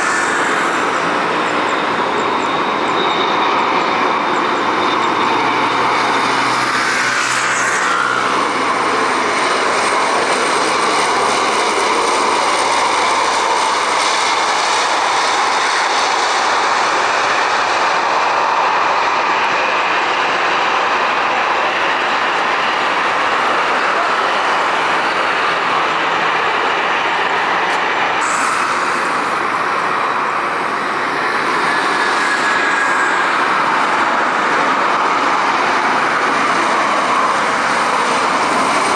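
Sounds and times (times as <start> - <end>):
aircraft engines running loudly: 0.0 - 38.9.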